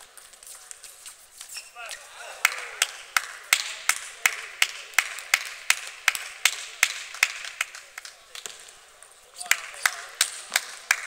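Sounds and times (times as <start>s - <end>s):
person clapping: 2.4s - 8.6s, 9.4s - 11.0s.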